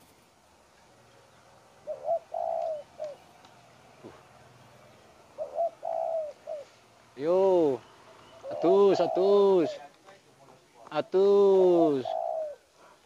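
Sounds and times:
dove cooing: 1.7 - 3.4, 4.9 - 6.9, 7.5 - 9.8, 11.0 - 13.0.

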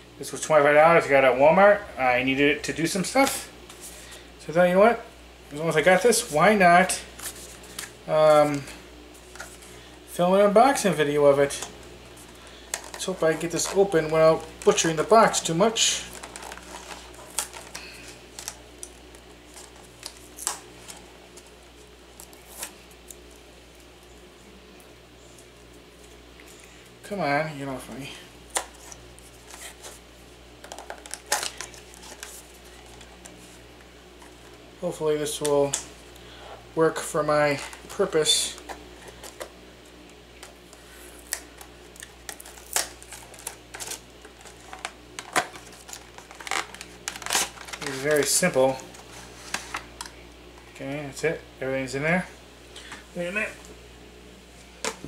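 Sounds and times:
packaging clicks and rustles: 12.7 - 21.5, 30.6 - 33.4, 40.3 - 50.2.

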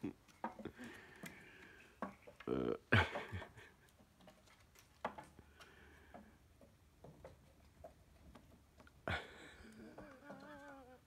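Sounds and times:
faint clicks and ticks: 0.0 - 11.0.

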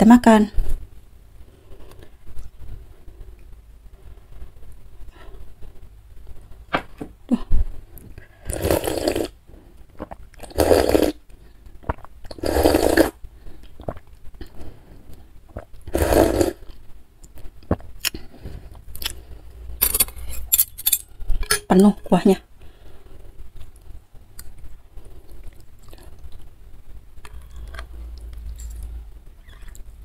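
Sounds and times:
slurping broth: 8.4 - 9.4, 10.0 - 11.2, 11.8 - 13.2, 15.5 - 16.8.

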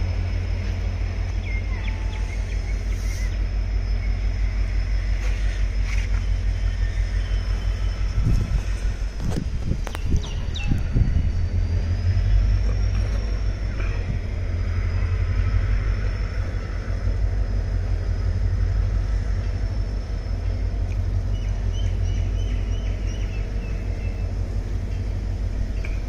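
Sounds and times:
thin high whine: 0.0 - 26.0
train coaches rumbling past: 0.0 - 26.0.

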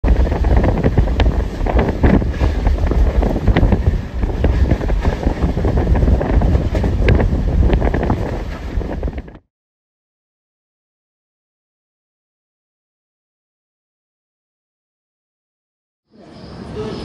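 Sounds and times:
train rumble and clatter: 0.0 - 9.4
wind buffeting microphone: 0.0 - 9.5.

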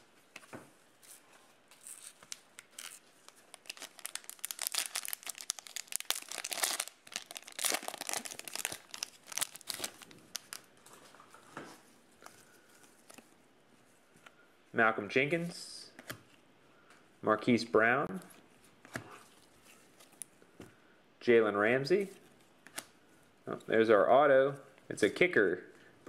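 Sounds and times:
plastic wrapper crinkling: 1.7 - 10.8.

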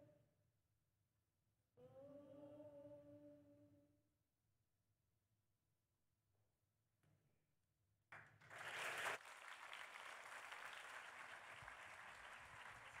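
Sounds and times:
audience applause: 8.4 - 13.0.

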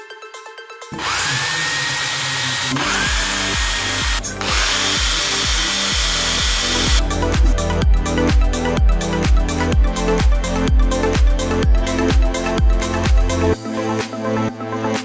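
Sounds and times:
electric drill on sheet metal: 0.9 - 7.1
dance music with steady beat: 2.7 - 15.0.

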